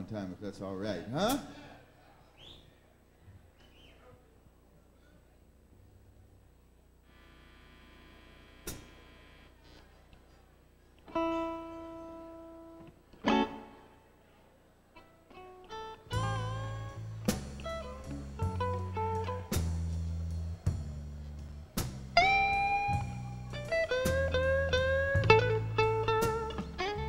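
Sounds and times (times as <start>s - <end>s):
electric guitar blues notes: 11.0s - 14.0s, 15.0s - 27.0s
low bass line: 16.1s - 27.0s.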